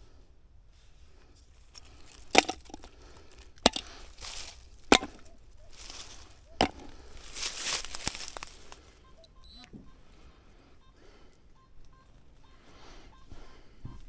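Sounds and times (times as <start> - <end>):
digging tool scraping: 1.6 - 8.7
digging tool striking ground: 1.7 - 8.7.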